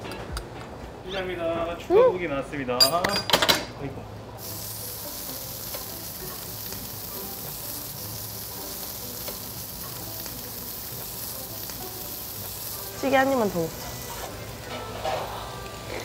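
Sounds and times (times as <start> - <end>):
meat and garlic sizzling on grill: 4.4 - 16.0.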